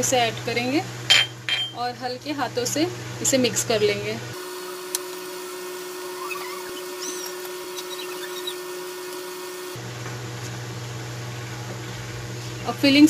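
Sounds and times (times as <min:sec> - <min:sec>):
mechanical hum and hiss: 0:00.0 - 0:13.0.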